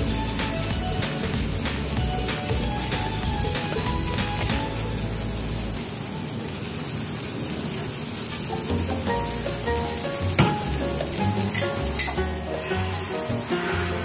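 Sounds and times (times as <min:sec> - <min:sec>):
background music with bass line: 0:00.0 - 0:05.7, 0:08.7 - 0:14.0
tomatoes sizzling in a pan: 0:00.0 - 0:14.0.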